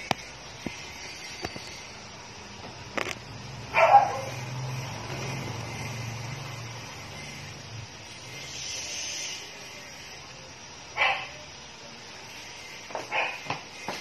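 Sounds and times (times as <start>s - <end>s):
dog barking: 3.7s - 4.4s, 11.0s - 11.4s, 13.1s - 13.5s.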